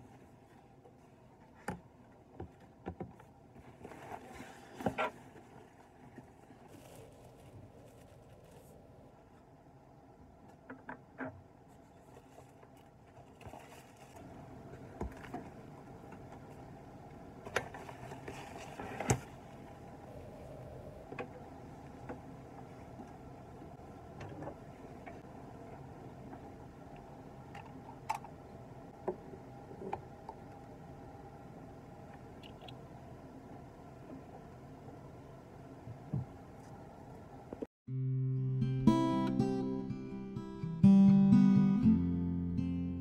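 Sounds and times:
faint room hum: 0:00.0 - 0:37.7.

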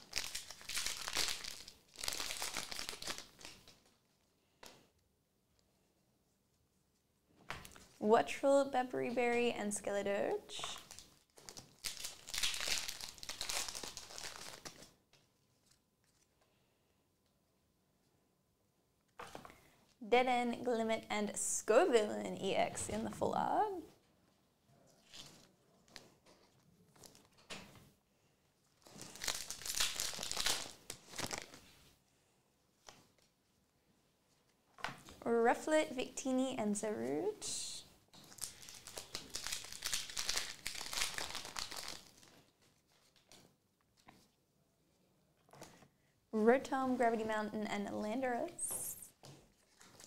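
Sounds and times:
foil wrapper crinkling and tearing: 0:00.0 - 0:03.8, 0:10.7 - 0:15.0, 0:28.8 - 0:31.8, 0:38.2 - 0:43.4, 0:49.5 - 0:50.0.

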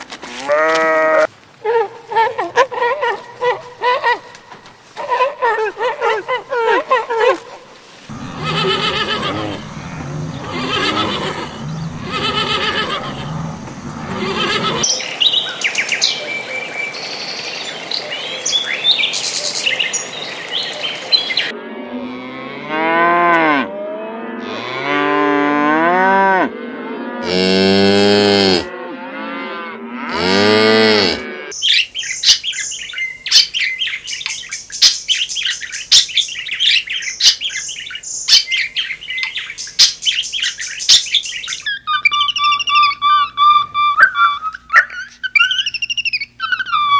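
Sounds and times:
cattle mooing: 0:08.1 - 0:14.9, 0:21.6 - 0:31.6
birds chirping: 0:08.1 - 0:21.5, 0:31.6 - 0:46.9
high-pitched chattering bird calls: 0:08.3 - 0:13.4, 0:14.0 - 0:16.2, 0:38.3 - 0:46.9.

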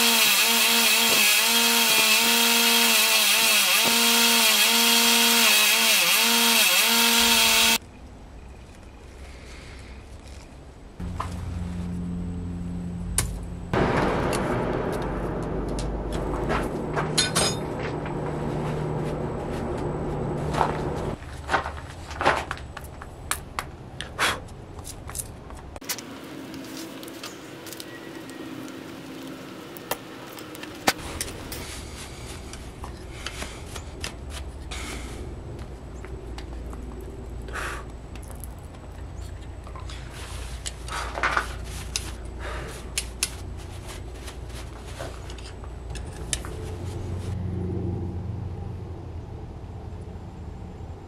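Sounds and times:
rubbing scuffs: 0:41.3 - 0:45.3.

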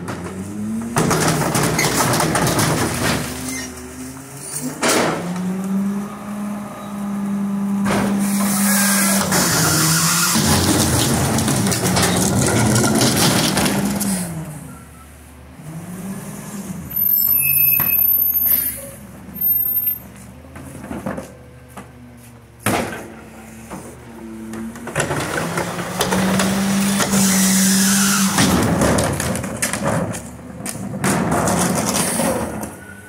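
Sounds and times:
garbage truck engine revving: 0:00.0 - 0:19.5, 0:22.9 - 0:33.0
high squeals: 0:16.9 - 0:20.1.

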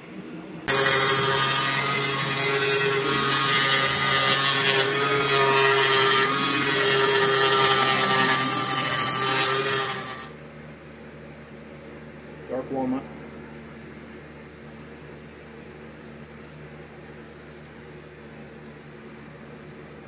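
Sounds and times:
orbital sander sanding wood: 0:00.7 - 0:10.3.

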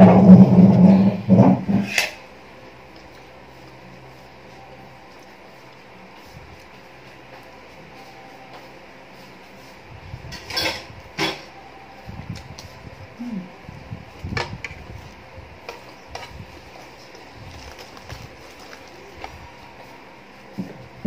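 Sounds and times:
chewing food: 0:02.9 - 0:04.1, 0:15.0 - 0:19.9
tableware clinking: 0:10.4 - 0:11.5.

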